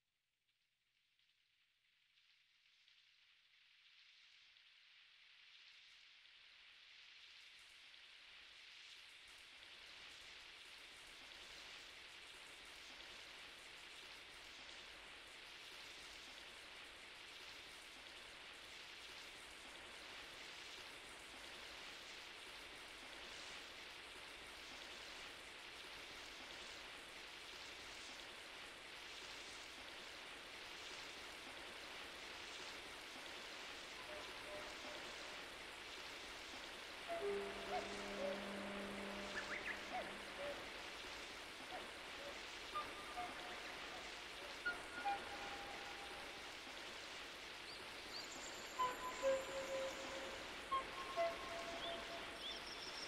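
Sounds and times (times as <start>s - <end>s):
rain-like hiss: 1.7s - 53.0s
faint electronic tones: 37.0s - 46.4s.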